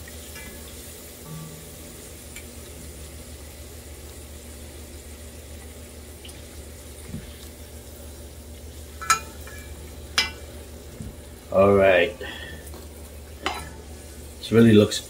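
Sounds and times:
food sizzling in hot oil: 0.0 - 15.0
low steady hum: 0.0 - 15.0
spatula stirring oil in pot: 8.8 - 11.0, 12.7 - 14.3.

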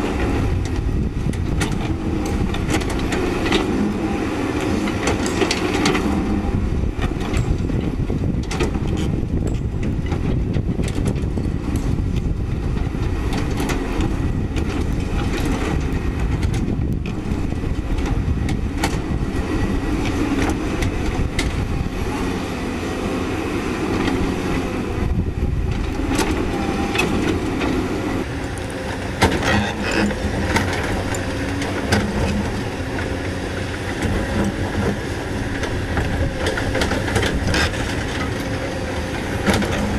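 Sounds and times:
excavator diesel engine under load: 0.0 - 39.9.

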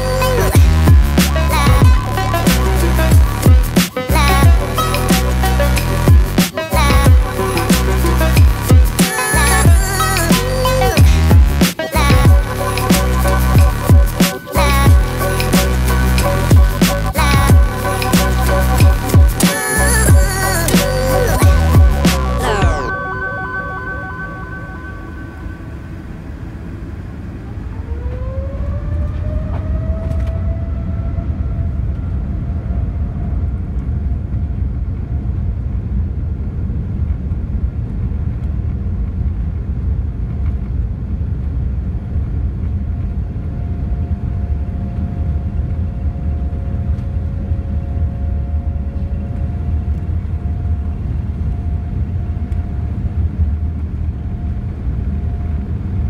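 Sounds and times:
jet engines rumbling in cabin: 20.1 - 56.0
jet engine whine: 22.2 - 56.0.

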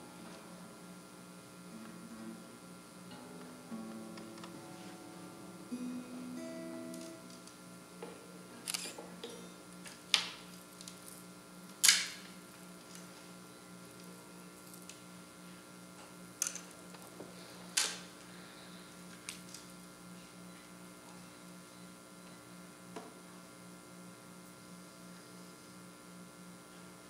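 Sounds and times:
steady low hum: 0.0 - 27.0
acoustic guitar notes: 1.7 - 7.5.

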